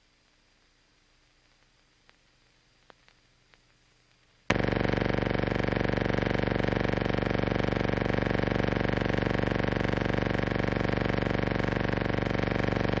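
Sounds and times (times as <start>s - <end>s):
loud pulsing buzz: 4.5s - 13.0s.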